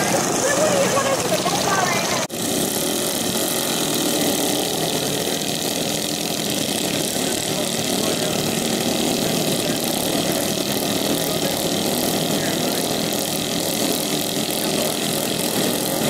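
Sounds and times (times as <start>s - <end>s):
small engines droning: 0.0s - 16.0s.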